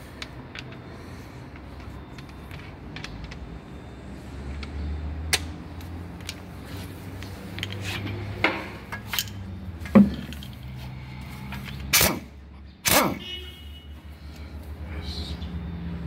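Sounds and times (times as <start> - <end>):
metal clinks and knocks: 7.5 - 10.8.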